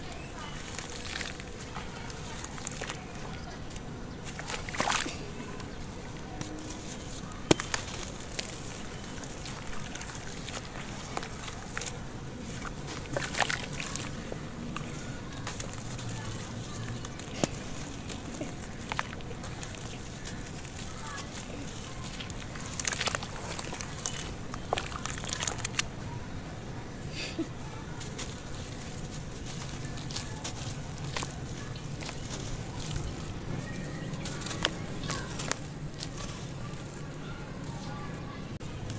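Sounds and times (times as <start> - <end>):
water sloshing: 0.0 - 27.0
clay cracking and snapping: 0.2 - 26.0, 34.0 - 37.0
clay crumbling in water: 7.4 - 14.2, 17.0 - 25.9.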